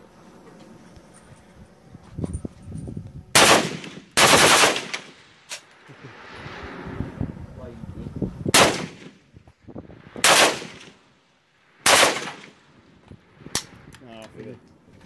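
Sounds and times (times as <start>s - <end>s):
rifle shots: 3.4s - 5.6s, 8.5s - 9.2s, 10.2s - 11.0s, 11.8s - 12.6s.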